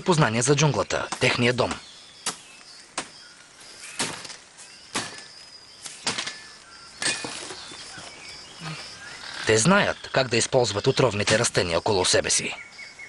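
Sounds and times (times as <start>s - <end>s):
faint high chirping: 0.0s - 13.0s
machete chopping tree trunk: 2.2s - 3.2s, 3.9s - 7.5s.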